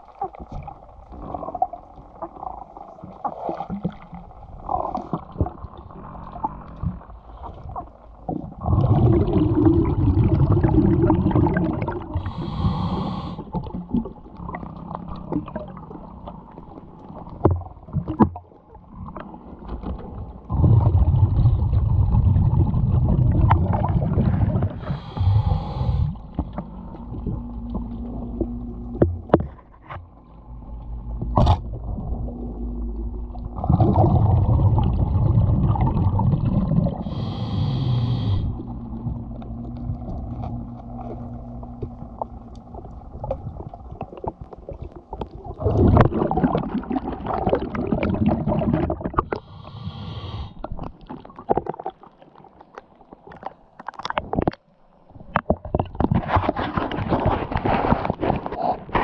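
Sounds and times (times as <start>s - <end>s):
bubbling regulator exhalations: 3.7s - 16.3s, 20.4s - 29.9s, 31.1s - 52.2s
hiss of air inhaled: 12.2s - 13.5s, 24.8s - 26.2s, 37.0s - 38.6s, 49.4s - 50.6s.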